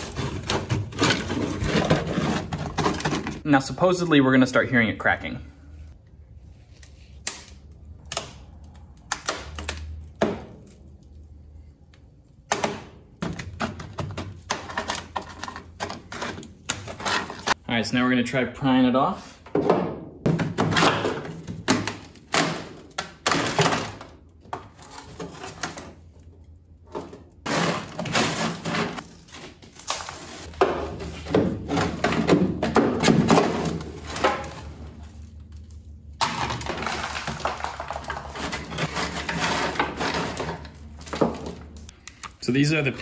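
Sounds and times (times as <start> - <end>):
scraper scraping metal floor: 0.0 - 3.4, 27.4 - 29.0, 38.3 - 40.8.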